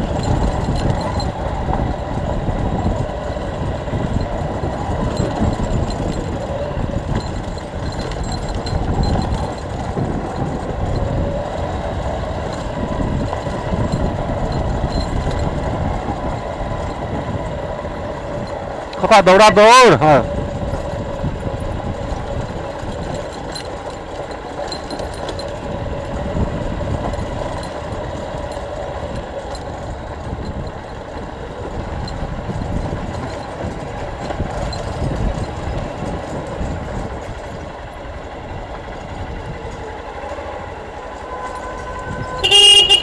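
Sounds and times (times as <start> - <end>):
vehicle engine running: 0.0 - 43.0
short horn toot: 41.3 - 43.0.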